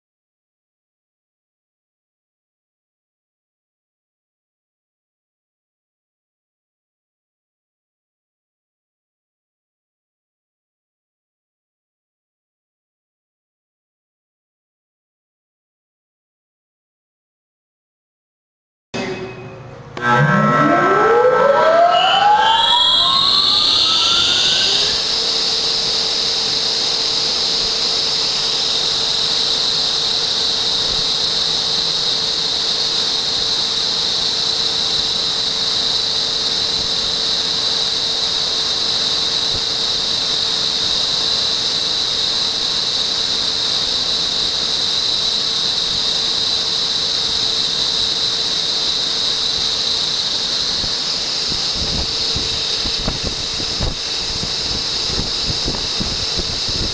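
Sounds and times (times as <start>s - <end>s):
electric pump motor whine: 19.7s - 56.9s
hiss: 24.1s - 56.9s.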